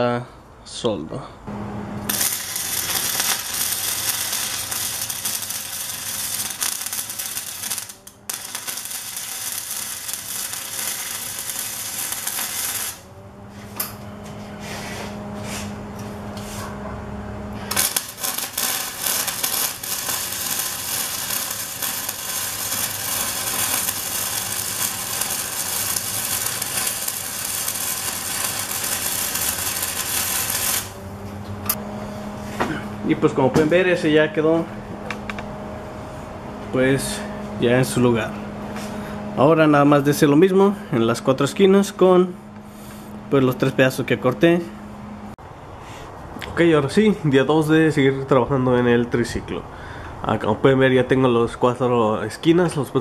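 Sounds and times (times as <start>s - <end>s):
steady hum: 1.4s - 47.8s
welding arc crackling: 1.9s - 13.2s, 17.5s - 31.8s.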